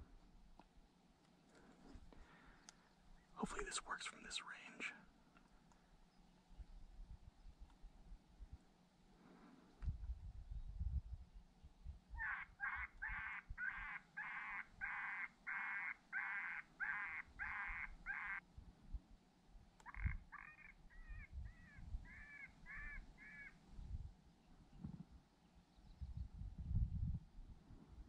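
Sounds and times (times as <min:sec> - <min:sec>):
electronic animal call cries: 0:12.2 - 0:18.4, 0:19.8 - 0:21.2.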